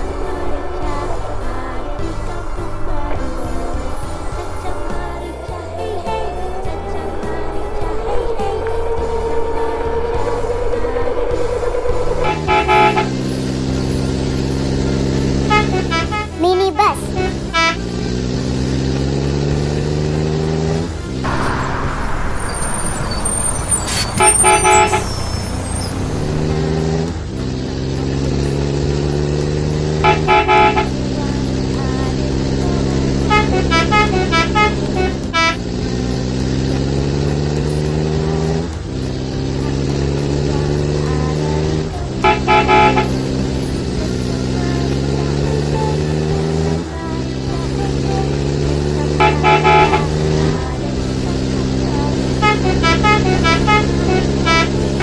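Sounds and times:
engine revving: 0.0 - 55.0
horn toots: 9.2 - 19.2, 20.5 - 27.1, 29.8 - 37.2, 41.6 - 46.8, 47.8 - 55.0.

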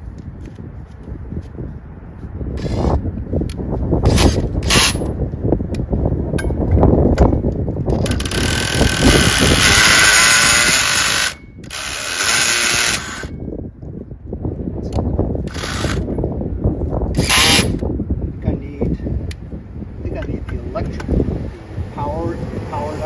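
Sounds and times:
cordless drill running: 8.0 - 13.3, 15.5 - 16.1.

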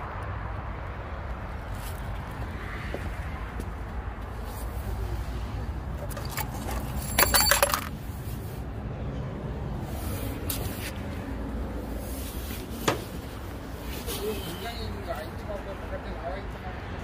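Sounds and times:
metal pieces jingling on steel: 6.1 - 8.0.

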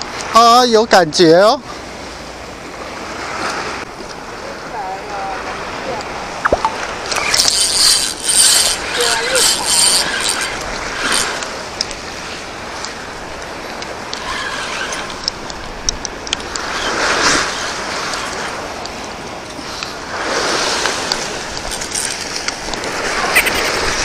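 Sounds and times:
fishing reel whirring and clicking: 6.7 - 15.7, 20.3 - 24.0.

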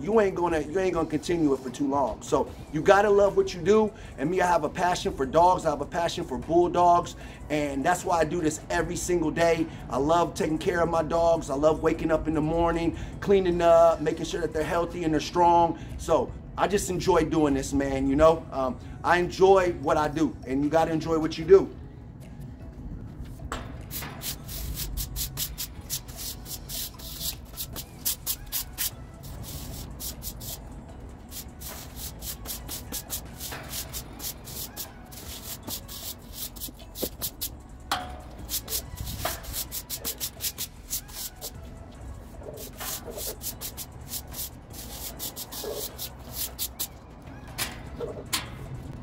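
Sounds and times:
push broom scrubbing wet floor: 31.3 - 37.5, 38.5 - 41.5, 42.6 - 46.9.

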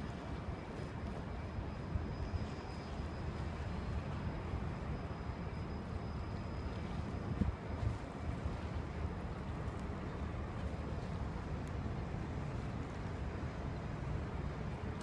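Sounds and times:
water: 0.0 - 15.0
wind buffeting the microphone: 6.9 - 15.0.

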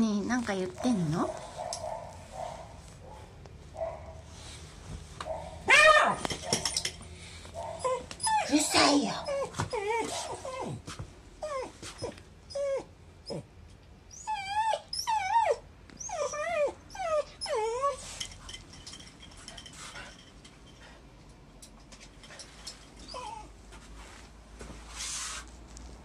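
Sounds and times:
dog whining: 5.3 - 6.8, 7.6 - 13.5, 14.1 - 18.2, 23.0 - 23.6.

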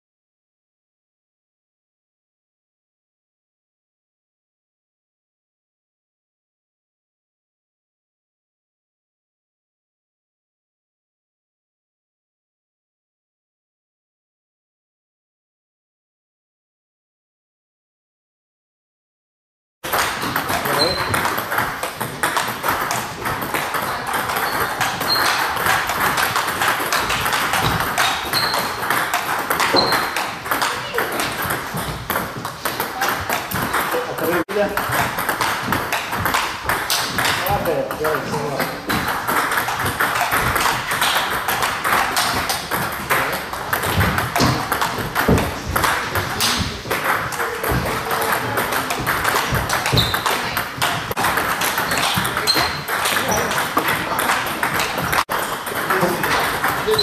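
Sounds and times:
table tennis balls clicking: 19.9 - 57.0.

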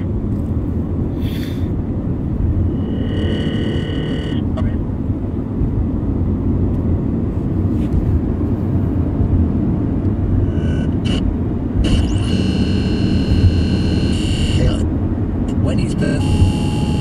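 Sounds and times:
low radio interference rumble: 0.0 - 17.0
high electronic tones: 2.7 - 4.6, 10.4 - 14.8, 15.6 - 17.0.

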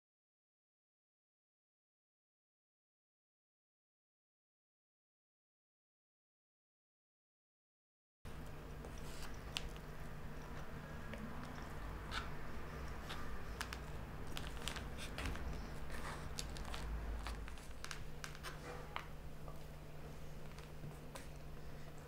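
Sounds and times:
steady low hum: 8.3 - 22.0
small clicks and crackles: 8.4 - 19.7, 20.4 - 21.5.

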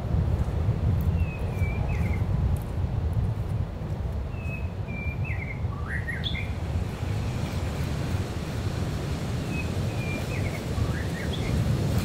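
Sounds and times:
low rumble of surf: 0.0 - 12.0
songbird singing: 1.1 - 2.3, 4.3 - 7.6, 9.4 - 11.7.

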